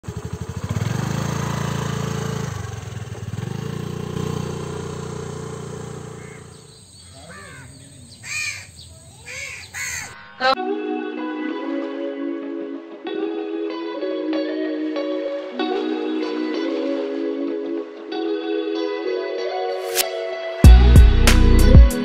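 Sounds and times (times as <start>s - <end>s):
motorbike engine passing: 0.0s - 10.0s
crows cawing: 6.0s - 10.6s.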